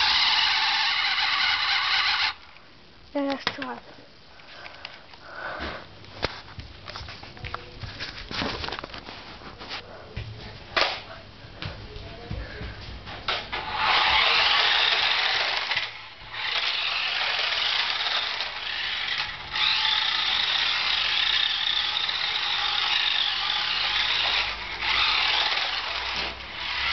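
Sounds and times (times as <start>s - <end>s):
toy car motor whirring: 0.0s - 2.4s, 13.6s - 26.9s.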